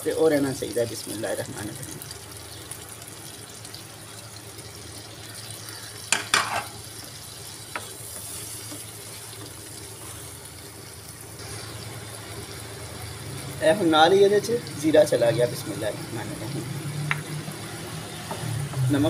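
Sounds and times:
vegetables sizzling in oil: 0.0s - 19.0s
wooden spoon knocking a pan: 6.1s - 6.8s.

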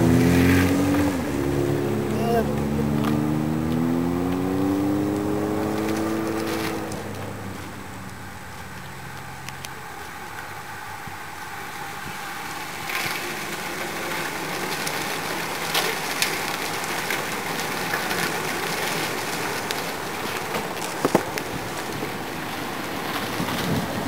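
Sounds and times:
bicycle tyres hissing on road: 0.0s - 24.0s.

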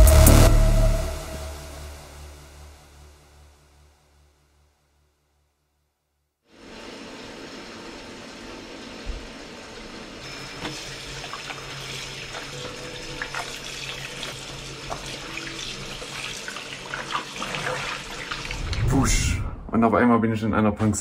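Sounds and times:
tap water running into basin: 6.7s - 18.6s
water sloshing and splashing: 12.3s - 18.8s.

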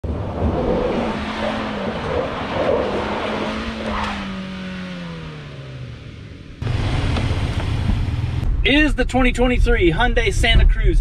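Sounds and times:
engine revving high: 0.1s - 8.5s.

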